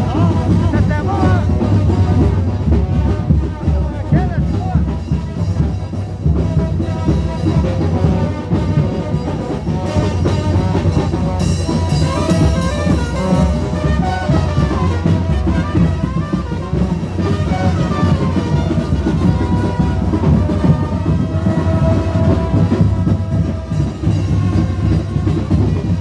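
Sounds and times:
steady drum beat: 0.0 - 26.0
brass horns playing: 6.4 - 26.0.

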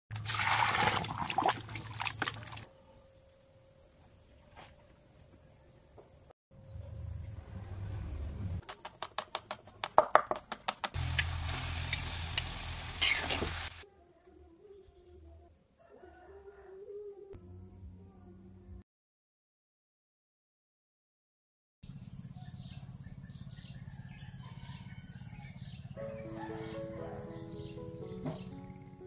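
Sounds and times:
frying sizzle: 10.9 - 13.8.

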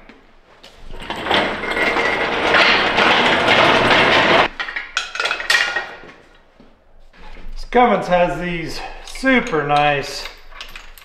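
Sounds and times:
metal hoist dragged on concrete: 0.8 - 4.7
metal clinks and clanks: 0.8 - 6.0, 9.0 - 11.0.

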